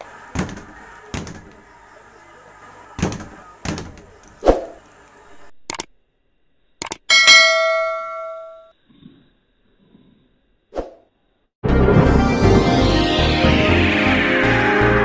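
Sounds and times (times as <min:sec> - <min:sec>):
bell ding: 0:07.1 - 0:08.7.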